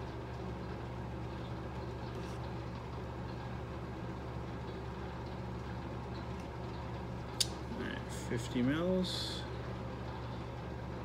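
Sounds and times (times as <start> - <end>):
room background hum: 0.0 - 11.0.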